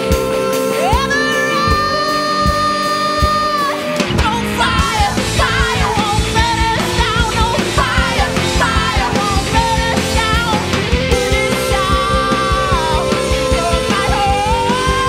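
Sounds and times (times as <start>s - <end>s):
live rock band playing: 0.0s - 15.0s
person singing: 0.0s - 15.0s.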